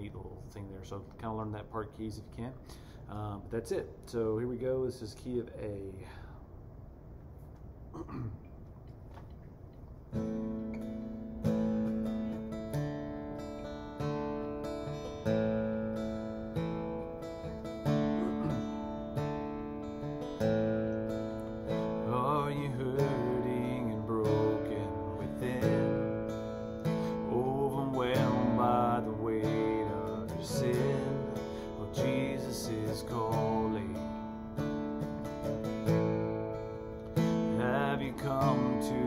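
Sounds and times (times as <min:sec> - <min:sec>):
acoustic guitar strumming: 0:10.1 - 0:39.0
man singing: 0:22.0 - 0:26.4, 0:27.1 - 0:34.2, 0:37.5 - 0:39.0.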